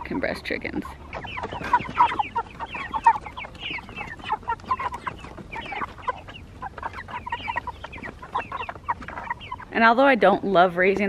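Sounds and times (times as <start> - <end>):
chickens calling: 0.0 - 11.0.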